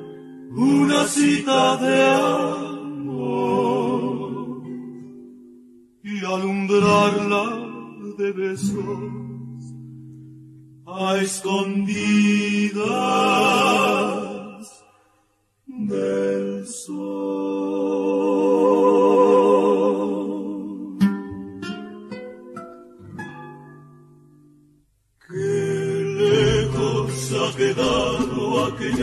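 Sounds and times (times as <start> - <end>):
male voices singing harmony: 0.5 - 4.8, 6.0 - 9.2, 10.9 - 14.9, 15.7 - 21.0, 25.3 - 29.0
plucked strings: 21.0 - 24.5, 26.2 - 29.0.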